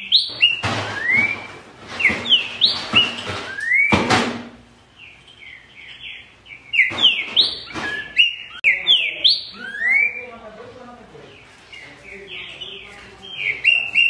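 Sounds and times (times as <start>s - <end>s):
bird singing whistled phrases: 0.0s - 4.0s, 5.4s - 10.3s, 11.8s - 14.0s.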